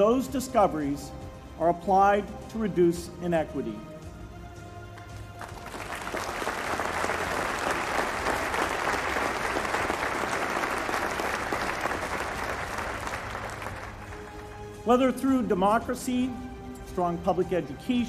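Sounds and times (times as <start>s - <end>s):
audience applauding: 5.0s - 14.7s.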